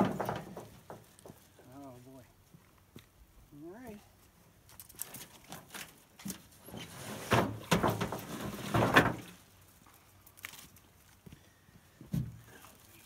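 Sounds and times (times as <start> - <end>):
tarp rustling: 4.9 - 11.0.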